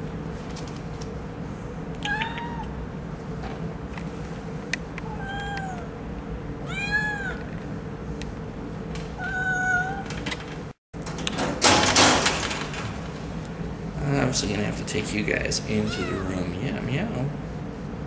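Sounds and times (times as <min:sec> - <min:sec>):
kittens meowing: 0:02.0 - 0:02.8, 0:05.0 - 0:05.9.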